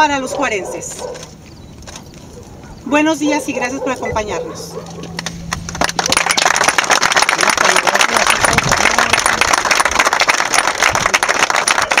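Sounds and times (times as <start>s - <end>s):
people applauding: 5.2s - 12.0s.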